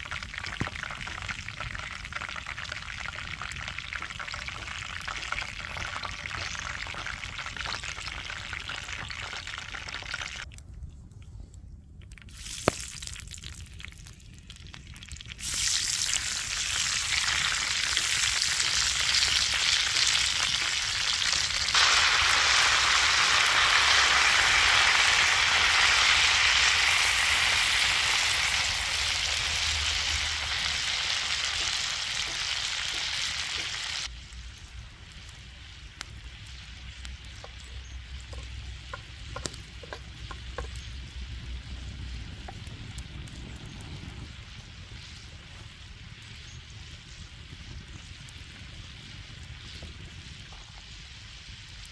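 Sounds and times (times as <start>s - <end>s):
potato wedges sizzling in oil: 0.0s - 10.5s, 15.0s - 43.0s.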